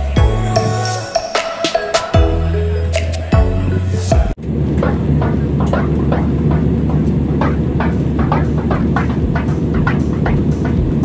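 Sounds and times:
airliner cabin engine roar: 4.4s - 11.0s.

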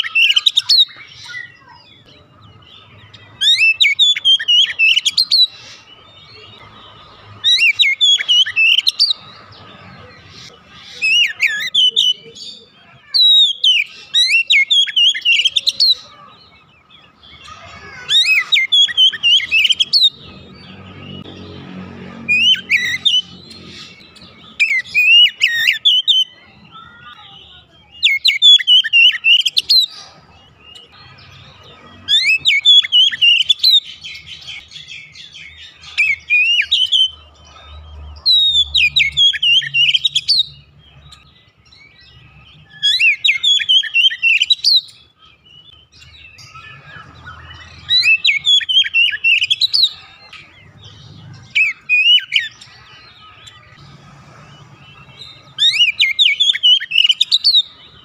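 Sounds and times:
bird singing whistled phrases: 0.0s - 1.9s, 3.4s - 6.5s, 7.4s - 9.2s, 11.0s - 16.2s, 28.0s - 30.0s, 42.7s - 45.0s, 45.6s - 49.9s, 55.6s - 57.7s.

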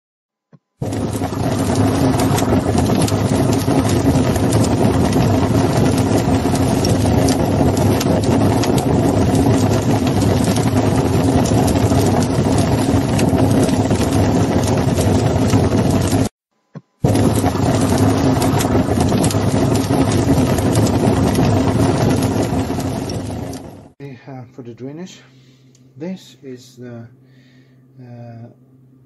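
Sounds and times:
flames roaring and crackling: 0.8s - 16.3s, 17.0s - 24.0s.

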